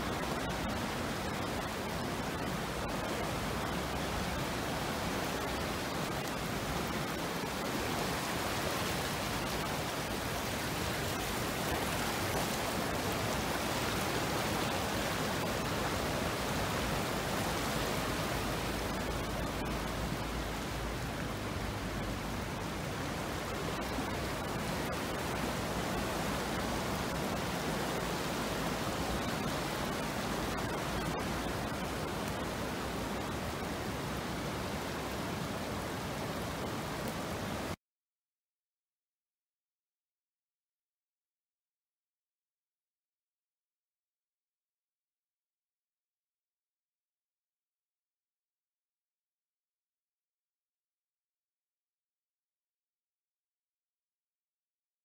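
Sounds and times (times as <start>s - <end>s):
floodwater rushing: 0.0s - 37.8s.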